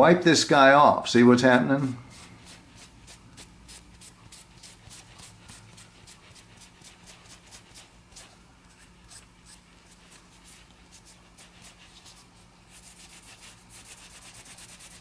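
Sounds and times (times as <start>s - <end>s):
low steady hum: 0.0s - 15.0s
cloth rubbing on wood: 3.7s - 15.0s.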